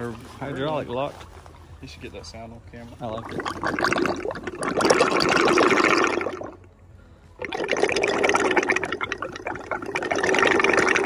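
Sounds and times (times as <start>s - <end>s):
hydraulic oil gurgling: 3.1s - 6.7s, 7.4s - 11.0s.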